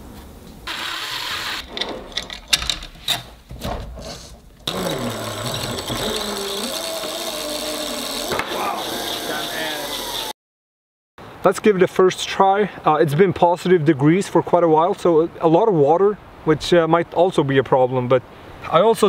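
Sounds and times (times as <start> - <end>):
cordless drill boring into plastic: 4.7 - 10.3.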